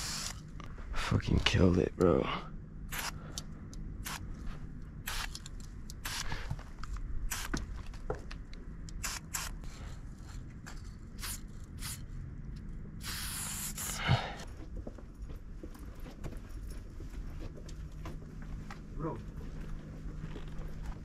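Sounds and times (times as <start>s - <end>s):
spray paint can hissing: 0.0s - 0.4s, 2.9s - 3.2s, 4.0s - 4.2s, 5.0s - 5.4s, 6.0s - 6.3s, 7.3s - 7.6s, 9.0s - 9.9s, 11.2s - 12.0s, 13.0s - 14.0s.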